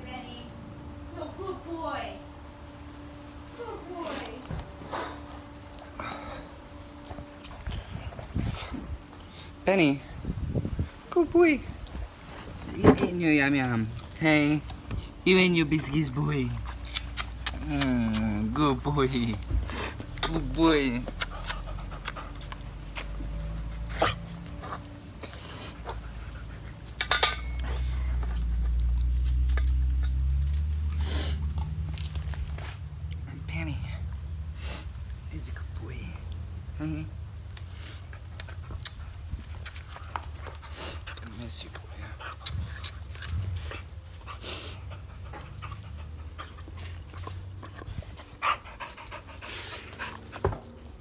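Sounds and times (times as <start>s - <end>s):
low rumble on microphone: 4.4s - 13.2s
dog panting: 12.1s - 30.2s, 37.6s - 51.0s.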